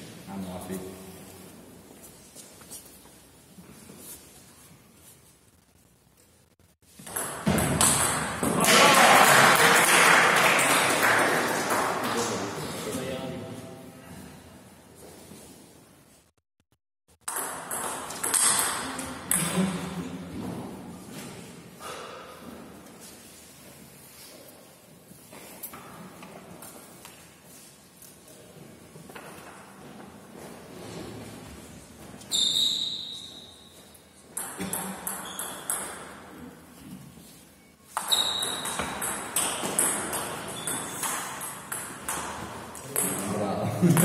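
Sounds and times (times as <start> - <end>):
short high squeak: 32.3 - 33.7, 38.0 - 38.8
table tennis ball pings: 37.9 - 42.4.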